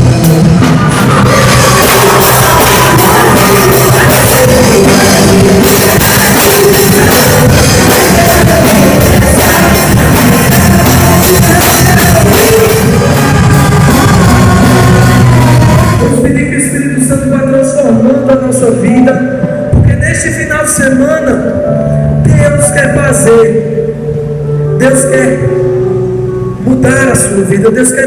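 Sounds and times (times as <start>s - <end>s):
drums and cymbals: 0.0s - 16.1s
worship band playing rock song: 0.0s - 28.0s
singing: 1.0s - 16.8s.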